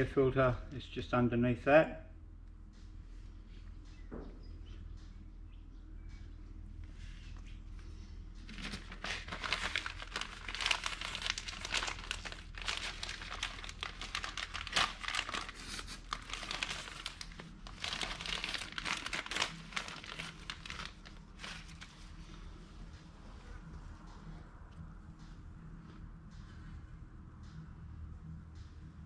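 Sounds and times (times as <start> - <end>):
plastic bag crinkling: 8.4 - 22.2.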